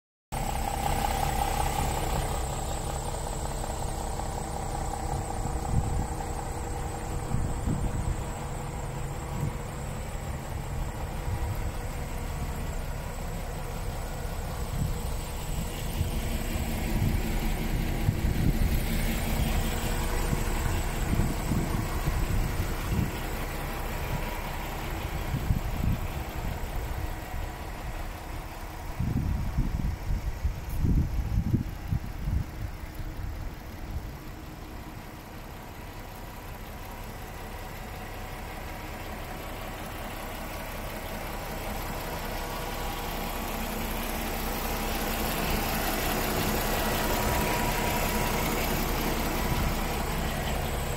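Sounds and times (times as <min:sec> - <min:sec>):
diesel engine idling: 0:00.3 - 0:50.9
wind buffeting microphone: 0:03.5 - 0:12.6, 0:14.5 - 0:34.2.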